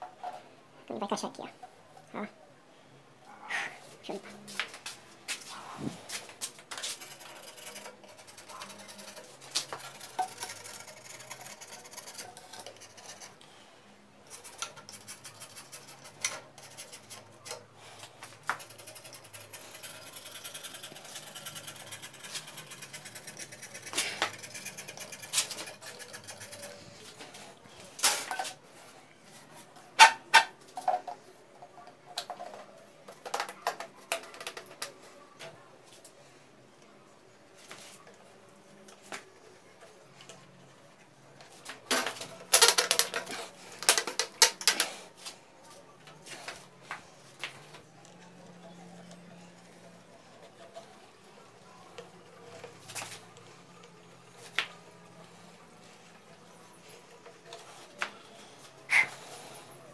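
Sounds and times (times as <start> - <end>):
plastic pipes clicking and knocking: 30.0 - 35.6, 41.9 - 45.0.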